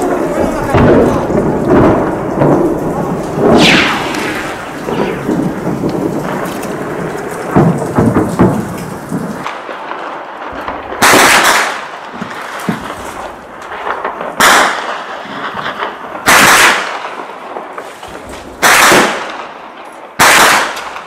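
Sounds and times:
low rumbling din: 0.0s - 8.7s
heavy gunfire and explosions: 0.0s - 9.8s
loud gunshot reports: 3.4s - 5.8s.

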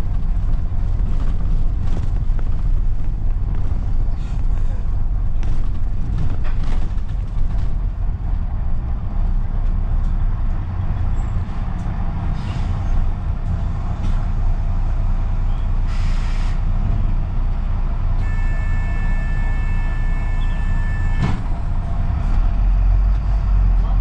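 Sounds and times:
bus engine low rumble: 0.0s - 24.0s
air brake hiss: 12.4s - 12.8s, 15.9s - 16.6s.

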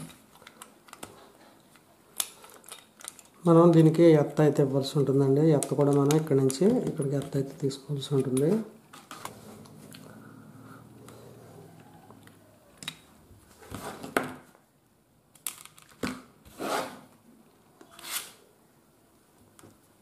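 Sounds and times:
low steady hum: 6.8s - 13.6s.

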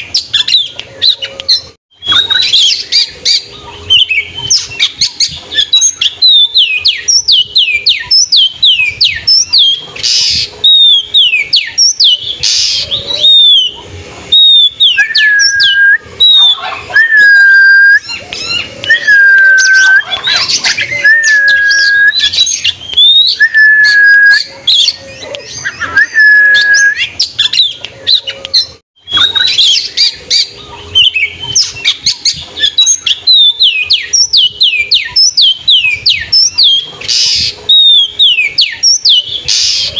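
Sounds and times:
songbird singing: 0.0s - 39.9s.

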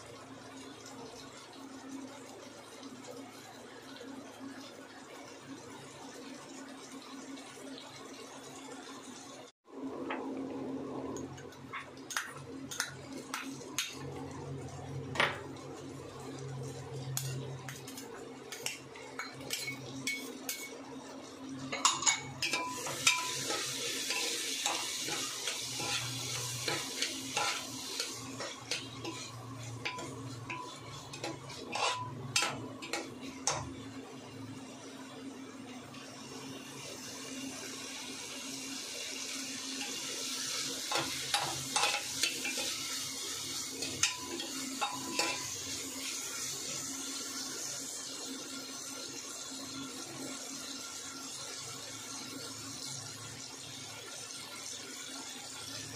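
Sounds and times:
soft frying sizzle: 0.0s - 55.9s
spoon scraping metal pot: 21.8s - 33.6s.

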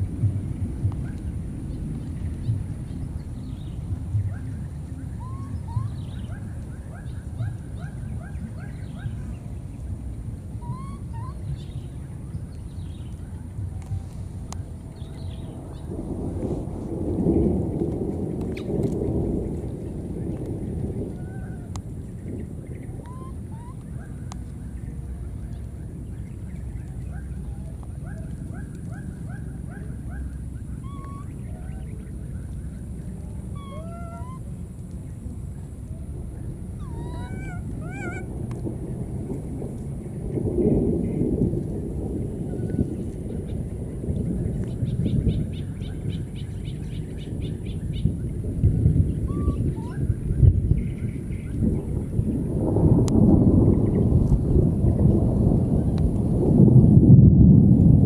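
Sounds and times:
low rumble: 0.0s - 58.0s
baby monkey crying: 5.2s - 6.0s, 10.6s - 11.4s, 23.1s - 23.8s, 30.8s - 31.3s, 33.6s - 34.4s, 36.8s - 38.3s, 49.3s - 50.0s
short high animal calls: 10.6s - 11.4s, 33.5s - 34.4s, 36.8s - 38.3s.

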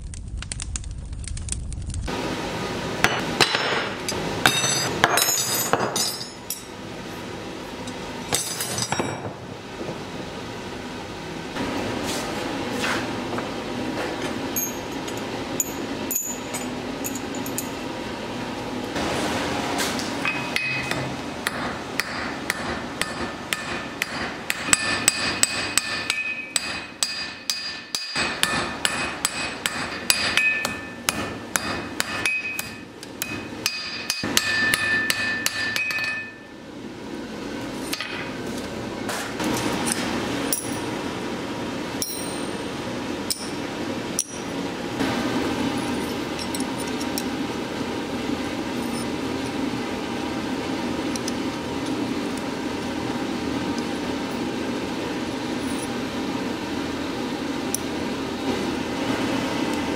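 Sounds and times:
hammer striking steel on anvil: 3.0s - 6.7s, 20.2s - 36.5s, 37.8s - 38.4s, 42.0s - 42.6s, 43.2s - 43.6s, 44.2s - 44.6s.

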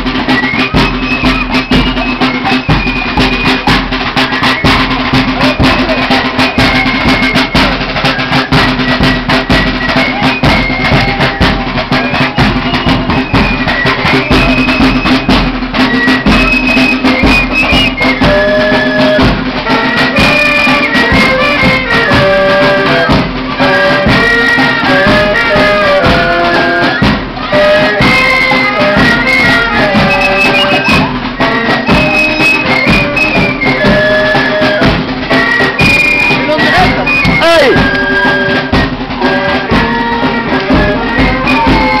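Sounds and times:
bass drum: 0.0s - 42.0s
snare drums beat: 0.0s - 42.0s
saxophones playing melody: 15.8s - 42.0s.

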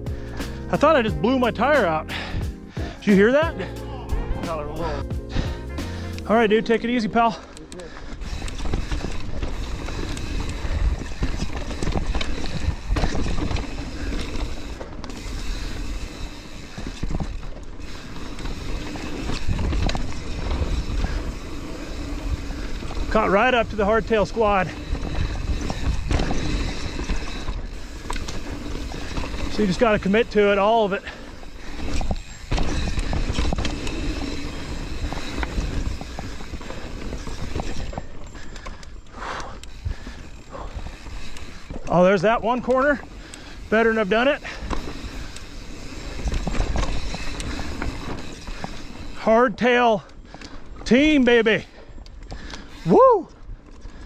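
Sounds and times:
bike tyres rumbling over dirt: 6.3s - 54.0s
bike knocks and rattles: 8.2s - 38.8s, 39.7s - 49.2s.

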